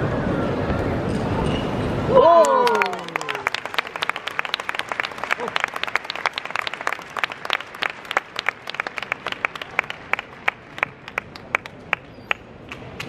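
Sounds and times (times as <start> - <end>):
crowd applauding: 2.2 - 13.0.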